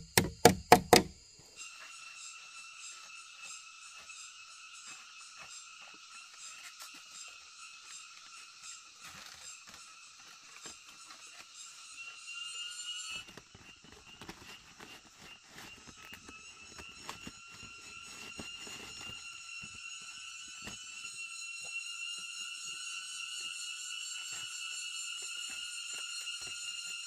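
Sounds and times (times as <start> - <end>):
rustling: 13.1 - 19.8.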